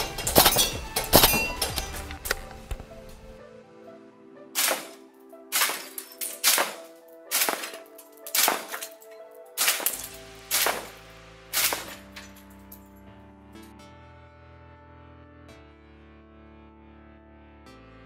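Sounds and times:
background music: 0:00.0 - 0:18.0
airsoft shotgun shots: 0:00.2 - 0:02.0, 0:04.6 - 0:09.0, 0:09.6 - 0:12.2.

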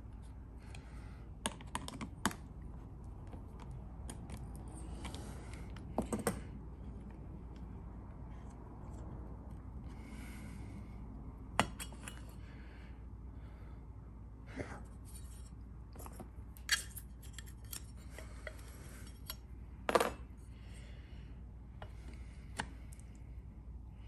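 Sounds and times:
small metal lock parts clicking: 0:16.6 - 0:19.4.

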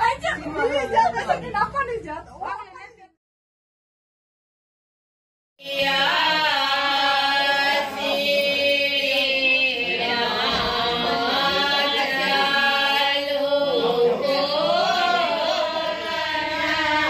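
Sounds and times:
voices singing melodic chant: 0:05.6 - 0:17.0.

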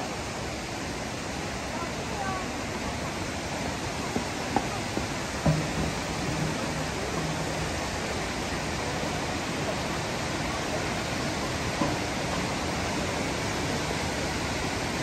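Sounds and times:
rushing mountain stream: 0:00.0 - 0:15.0
footsteps on plank walkway: 0:03.5 - 0:08.1, 0:11.4 - 0:12.6.

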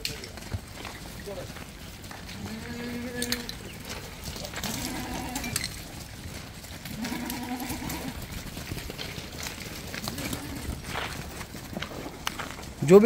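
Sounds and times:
goats bleating: 0:02.2 - 0:03.7, 0:04.4 - 0:05.8, 0:06.8 - 0:08.4, 0:10.0 - 0:10.9.

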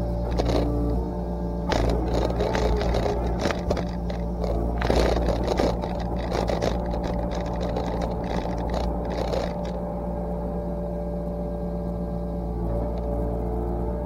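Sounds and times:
excavator diesel engine running: 0:00.0 - 0:14.0
brush cracking and scraping: 0:00.2 - 0:00.9, 0:01.7 - 0:09.8.

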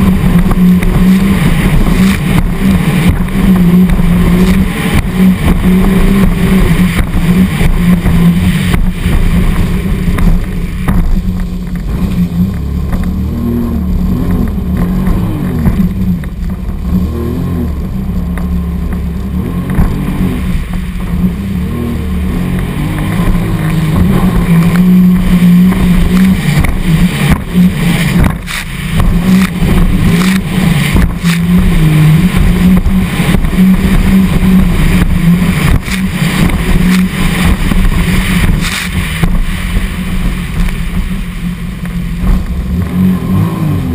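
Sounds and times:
hull slapping waves: 0:00.0 - 0:43.9
personal watercraft engine: 0:00.0 - 0:43.9
wind buffeting microphone: 0:17.7 - 0:43.0.

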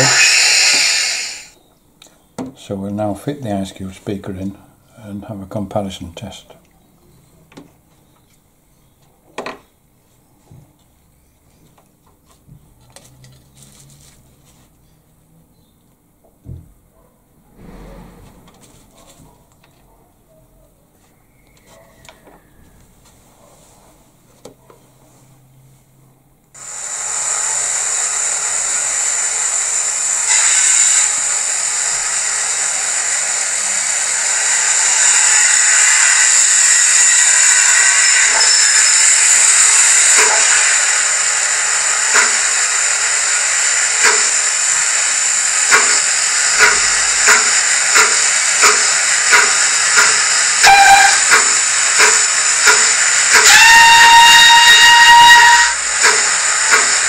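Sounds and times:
steam hissing: 0:00.0 - 0:01.6, 0:17.6 - 0:19.0, 0:26.6 - 0:57.0
steam locomotive chuffing: 0:00.0 - 0:01.6, 0:17.6 - 0:19.2, 0:26.6 - 0:57.0
train whistle: 0:30.2 - 0:57.0.

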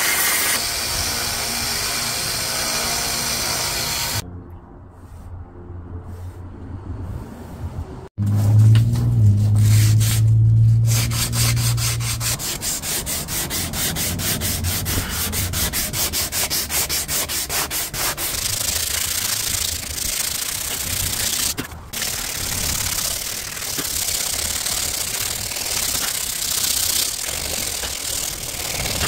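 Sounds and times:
low hum: 0:03.6 - 0:12.4
sandpaper rubbing on wood: 0:06.1 - 0:06.5, 0:07.2 - 0:29.0.

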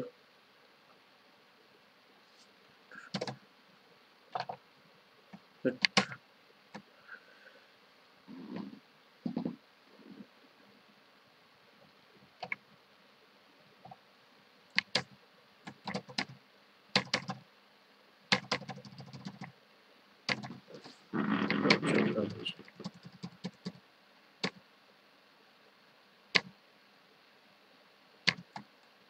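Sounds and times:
keyboard keys clicking: 0:03.1 - 0:03.4, 0:14.8 - 0:15.1, 0:15.7 - 0:16.4, 0:17.0 - 0:17.4, 0:18.3 - 0:19.5, 0:20.3 - 0:20.6, 0:28.3 - 0:28.6.

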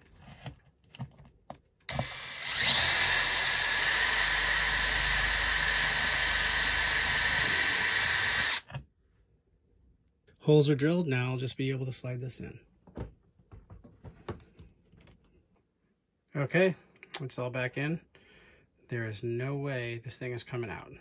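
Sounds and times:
cordless drill whine: 0:01.9 - 0:08.8.

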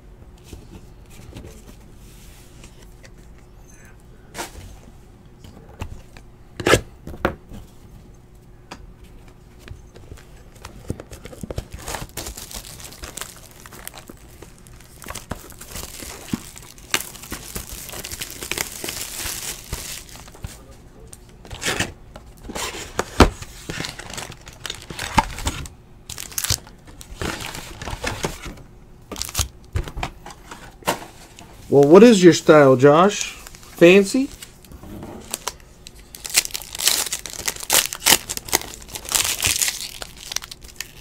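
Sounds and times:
foil packs rustling: 0:10.2 - 0:20.7, 0:21.5 - 0:28.5, 0:29.1 - 0:29.5, 0:31.7 - 0:34.6, 0:35.2 - 0:41.0
plastic wrap crinkling and tearing: 0:10.6 - 0:20.6, 0:23.6 - 0:28.4, 0:29.1 - 0:29.5, 0:33.1 - 0:41.0.

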